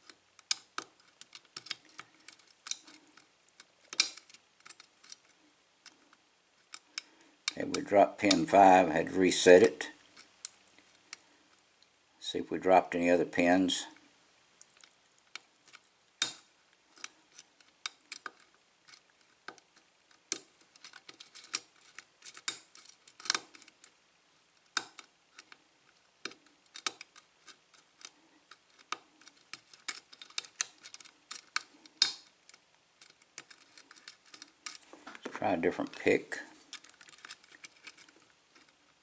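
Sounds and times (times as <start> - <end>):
lock pick clicking and scratching: 0.0 - 8.5, 9.5 - 11.2, 14.6 - 24.0, 24.6 - 35.3, 36.5 - 39.0.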